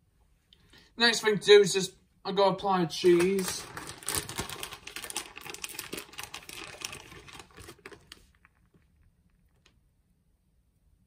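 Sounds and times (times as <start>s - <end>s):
plastic packet crinkling: 2.9s - 9.8s.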